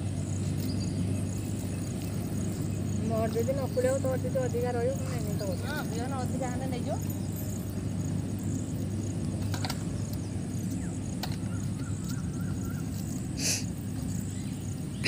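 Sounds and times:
steady low rumble: 0.0 - 15.0
faint bird calls: 10.8 - 15.0.

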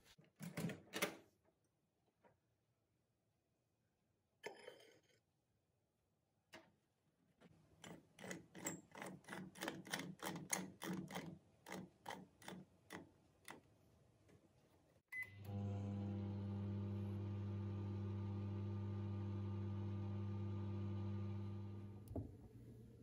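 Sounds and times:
microwave oven humming: 15.2 - 23.0.

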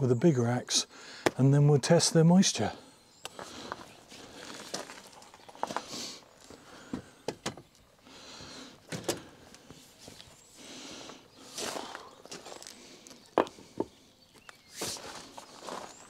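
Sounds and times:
footsteps on gravel: 3.3 - 7.1, 11.0 - 16.0.

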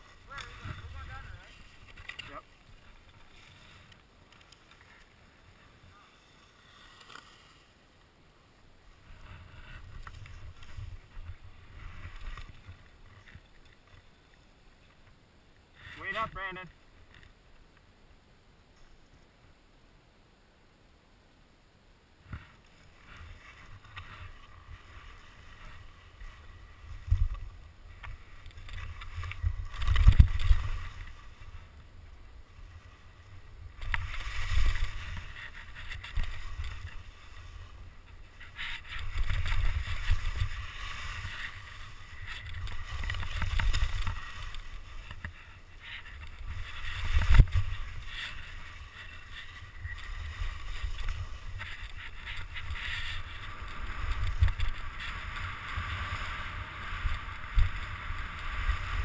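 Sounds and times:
wind rumble on microphone: 0.0 - 3.2, 22.3 - 59.0
skis scraping over snow: 0.0 - 15.1, 15.7 - 17.4, 22.2 - 59.0.

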